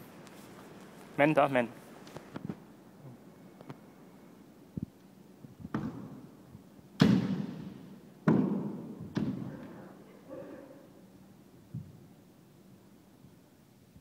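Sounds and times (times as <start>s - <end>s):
bamboo sword strikes: 7.0s - 9.4s.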